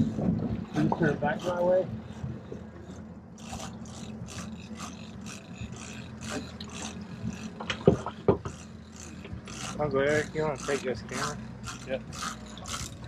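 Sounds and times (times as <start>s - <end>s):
boat engine hum: 0.0s - 13.0s
fishing reel whirring: 0.0s - 13.0s
sharp knocks: 7.3s - 8.6s.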